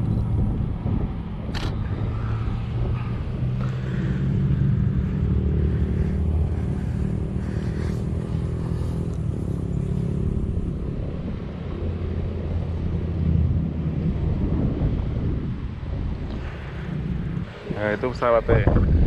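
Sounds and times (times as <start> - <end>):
aircraft engines droning: 0.0 - 19.0.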